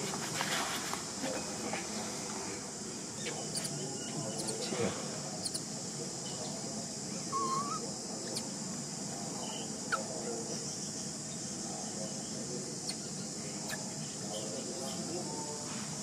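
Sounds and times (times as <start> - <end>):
steady high hiss: 0.0 - 16.0
short wavering call: 7.3 - 7.8.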